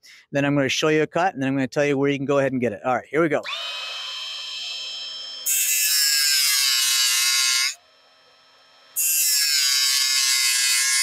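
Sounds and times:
high-pitched metal grinding: 3.4s - 11.0s.

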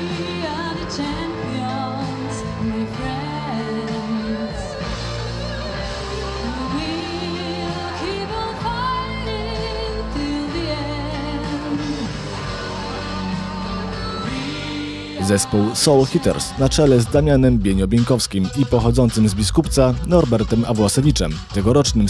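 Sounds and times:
woman singing with vibrato: 0.0s - 16.6s
instrumental accompaniment: 0.0s - 22.0s.

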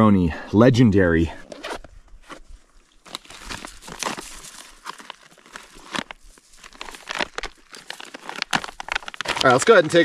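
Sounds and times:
plastic pouch crinkling and tearing: 2.8s - 10.0s.

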